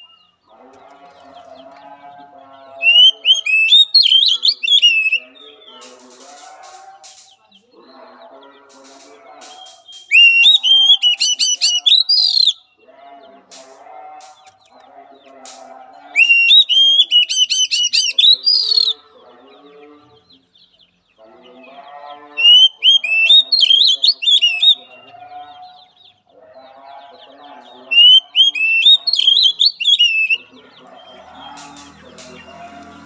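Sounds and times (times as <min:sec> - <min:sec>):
bird whistling song: 0:02.8 - 0:05.3, 0:09.4 - 0:12.7, 0:16.2 - 0:19.0, 0:22.4 - 0:24.9, 0:28.0 - 0:30.5
low bird chattering: 0:02.8 - 0:12.6, 0:13.5 - 0:19.1, 0:22.3 - 0:25.1, 0:27.2 - 0:33.0.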